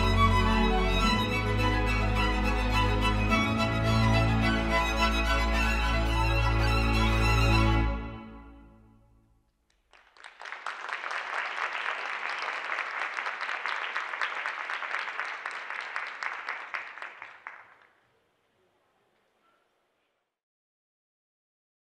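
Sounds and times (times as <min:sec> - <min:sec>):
audience applauding: 0:09.7 - 0:18.2.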